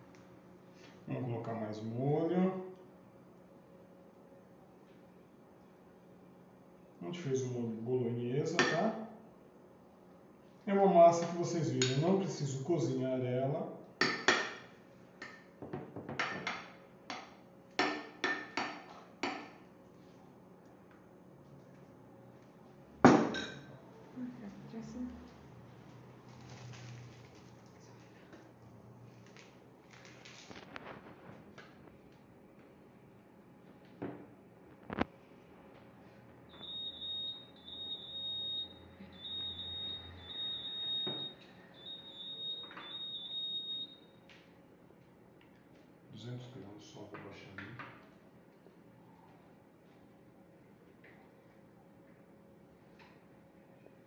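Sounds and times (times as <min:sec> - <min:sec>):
electronic beeper tone: 0:36.5 - 0:44.0.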